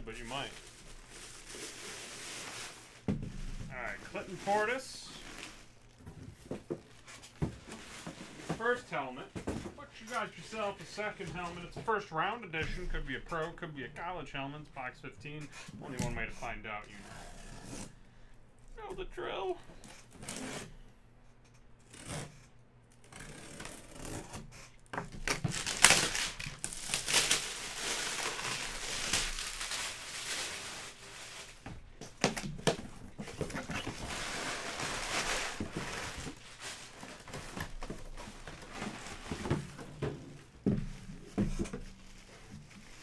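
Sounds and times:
cardboard scraping and rustling: 0:00.2 - 0:12.1, 0:25.3 - 0:43.0.

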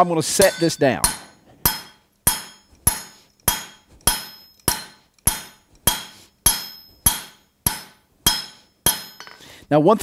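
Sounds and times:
hammer striking steel on anvil: 0:00.2 - 0:09.4.

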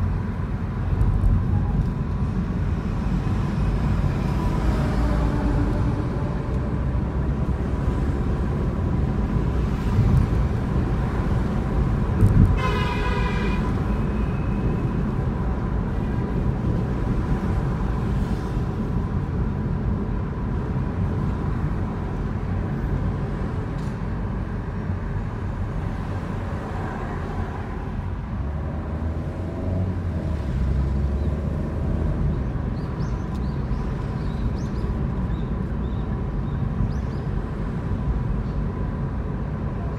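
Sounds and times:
car engine and road rumble: 0:00.0 - 0:39.9
car horn honk: 0:12.5 - 0:14.5.

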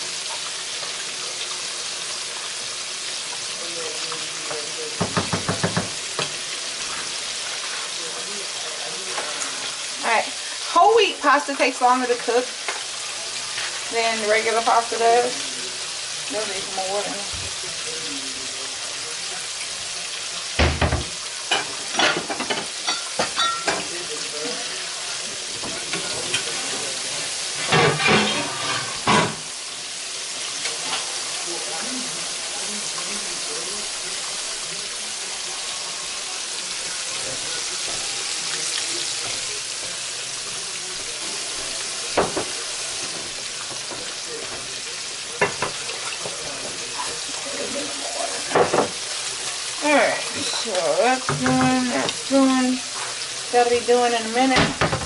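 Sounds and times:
chicken sizzling in oil: 0:00.0 - 0:55.0
wooden spoon knocking pot rim: 0:05.0 - 0:06.3.

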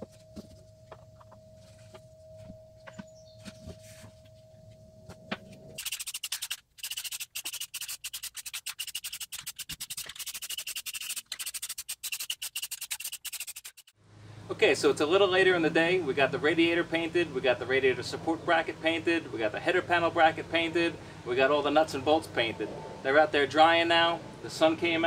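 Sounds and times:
handling of cardboard: 0:00.0 - 0:04.5
steady hum: 0:00.0 - 0:21.3
aerosol spray can hissing: 0:05.8 - 0:13.9.

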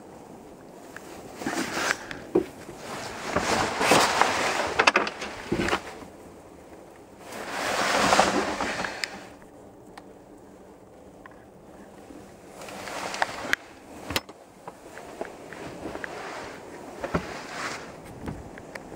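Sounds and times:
canvas cover rustling: 0:01.0 - 0:06.2, 0:07.2 - 0:09.4, 0:12.6 - 0:18.9.

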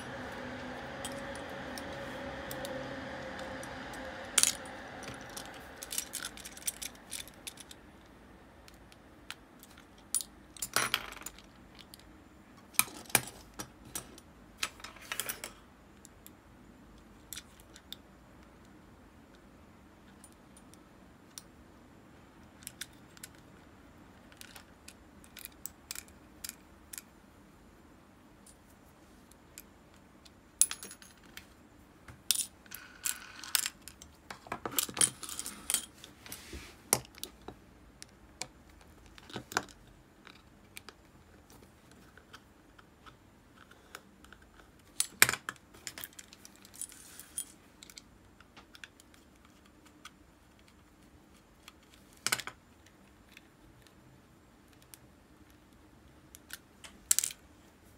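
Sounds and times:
small metal parts clinking: 0:04.3 - 0:07.8, 0:32.3 - 0:36.0.

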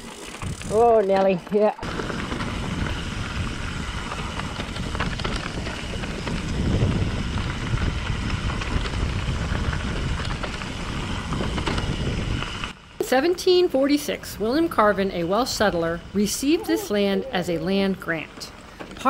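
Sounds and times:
bike rattling: 0:00.0 - 0:19.0
tyres rumbling on dirt: 0:00.0 - 0:19.0
wind on microphone: 0:00.3 - 0:01.0, 0:01.8 - 0:12.8.

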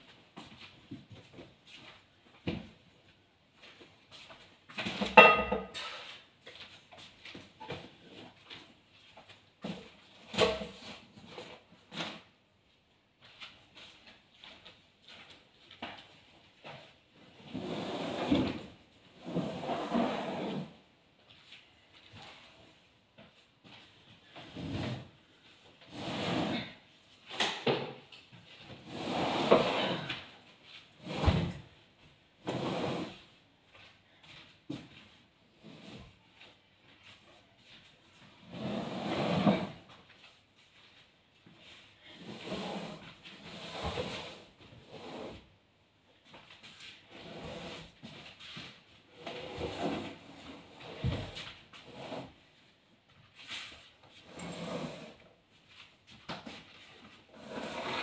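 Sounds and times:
furniture scraping on wooden floor: 0:17.4 - 0:20.8, 0:24.4 - 0:25.1, 0:25.9 - 0:26.8, 0:28.8 - 0:30.1, 0:31.0 - 0:31.6, 0:32.4 - 0:33.2, 0:38.4 - 0:39.9, 0:42.1 - 0:45.4, 0:47.1 - 0:48.2, 0:49.1 - 0:52.4, 0:53.4 - 0:55.2, 0:57.3 - 0:58.0.

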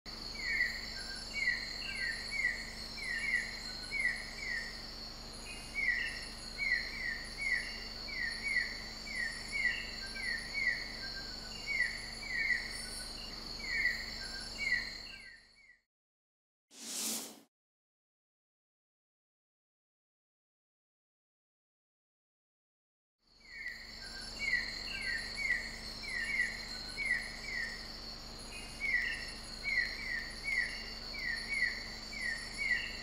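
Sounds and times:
insects droning: 0:00.1 - 0:15.4, 0:23.3 - 0:33.0.

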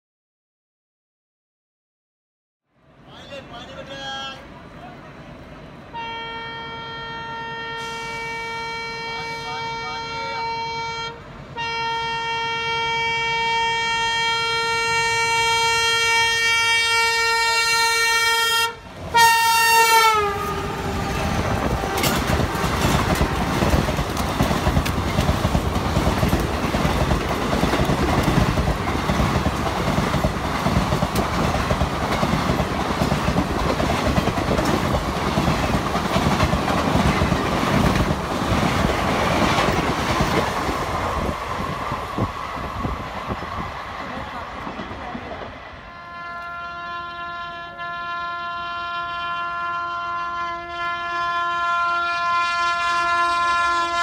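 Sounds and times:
train rumbling past: 0:02.8 - 0:54.0
train horn: 0:05.9 - 0:24.0, 0:45.7 - 0:54.0
wheels clattering over rail joints: 0:21.3 - 0:40.7.

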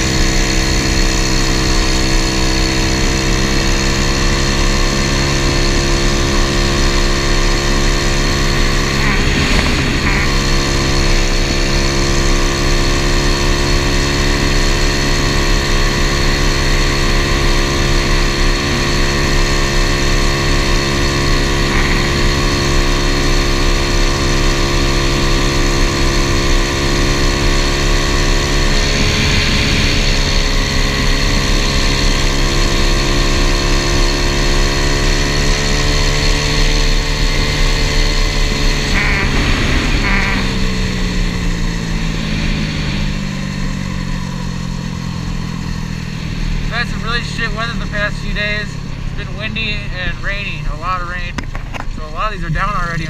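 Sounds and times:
small motorbike engine running: 0:00.0 - 0:53.0
wind buffeting microphone: 0:08.7 - 0:12.0.

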